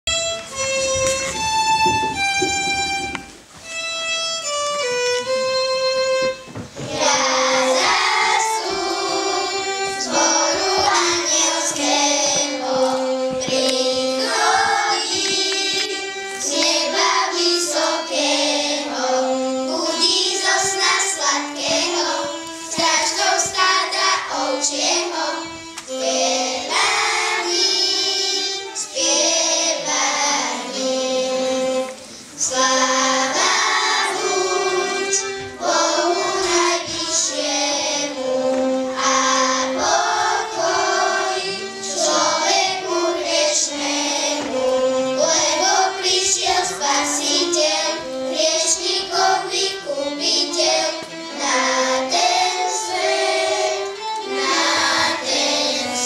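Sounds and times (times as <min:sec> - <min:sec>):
children's choir singing: 0:04.4 - 0:56.0.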